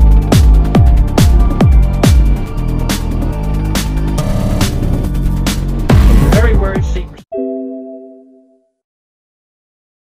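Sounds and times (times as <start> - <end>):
deep bass swoops: 0.0 - 6.8
electronic music with heavy beat: 0.0 - 7.2.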